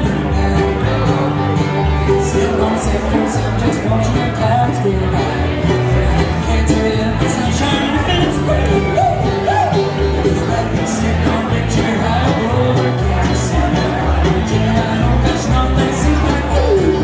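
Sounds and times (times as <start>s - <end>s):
acoustic guitar: 0.0s - 17.0s
banjo: 0.0s - 17.0s
man singing: 0.0s - 17.0s
mandolin: 0.0s - 17.0s
upright bass: 0.0s - 17.0s.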